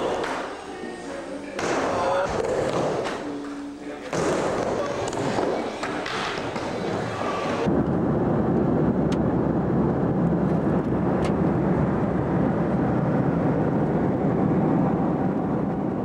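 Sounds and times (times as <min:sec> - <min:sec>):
jet cabin rush: 0:04.3 - 0:16.0.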